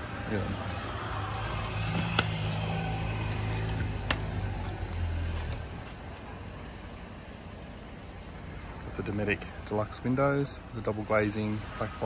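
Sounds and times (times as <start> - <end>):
vehicle engine humming: 0.0 - 12.0
latch clicking shut: 1.9 - 2.4.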